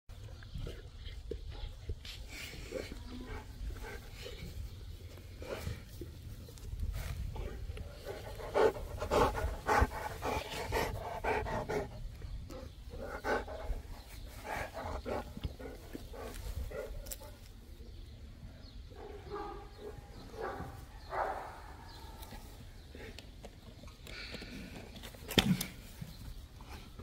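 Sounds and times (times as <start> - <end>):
dogs vocalizing: 7.7 - 17.4.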